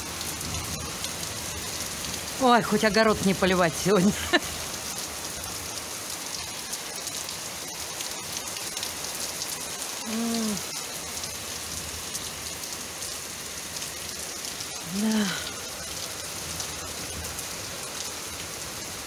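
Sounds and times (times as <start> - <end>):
heavy rain falling: 0.0 - 19.0
person humming briefly: 10.0 - 10.7, 14.9 - 15.6.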